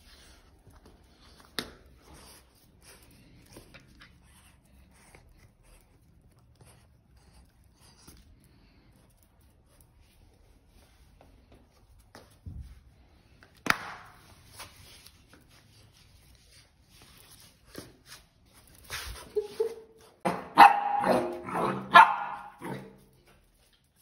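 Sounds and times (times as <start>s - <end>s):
puppy barking: 20.3s - 23.0s.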